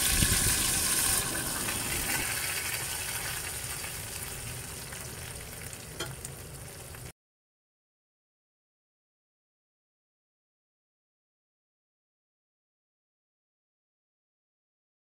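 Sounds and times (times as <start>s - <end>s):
spices sizzling in hot oil: 0.0s - 7.1s.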